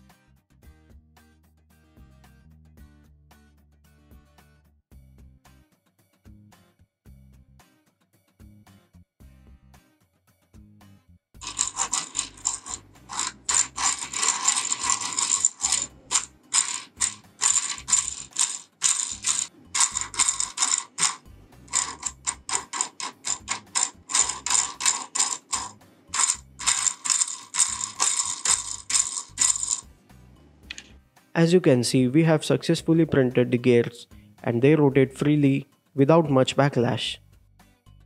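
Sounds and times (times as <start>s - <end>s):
plastic gears rattling whir: 11.4s - 29.8s.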